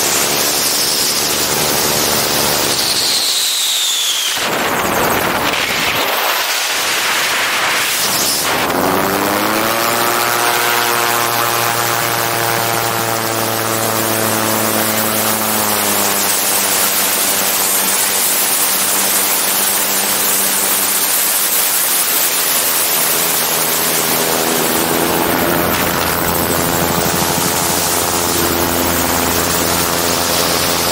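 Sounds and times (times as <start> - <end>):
aircraft engine and propeller: 0.0 - 30.9
heavy wind rush: 4.4 - 9.4, 22.4 - 30.8.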